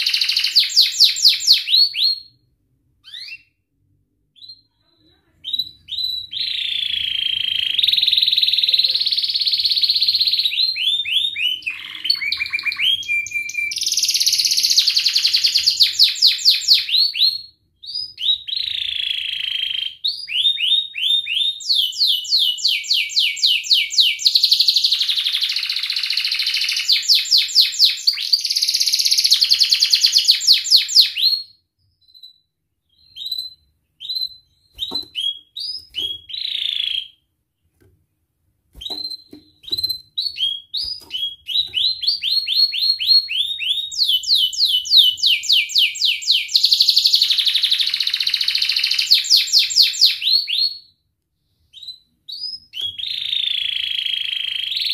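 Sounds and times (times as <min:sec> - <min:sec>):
canary chirps: 0:00.0 - 0:03.6, 0:04.3 - 0:37.9, 0:38.7 - 0:51.0, 0:51.6 - 0:54.9
canary singing trills: 0:04.4 - 0:31.4, 0:38.8 - 0:50.8.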